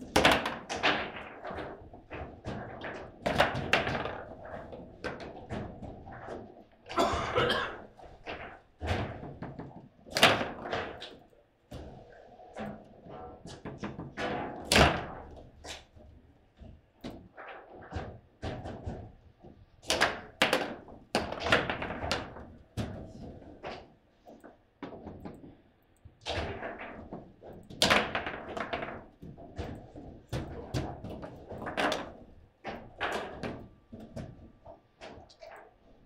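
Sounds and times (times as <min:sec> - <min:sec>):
table football knocks and thuds: 0:00.0 - 0:06.6, 0:08.2 - 0:11.2, 0:13.4 - 0:15.8, 0:17.8 - 0:25.6, 0:26.2 - 0:35.3.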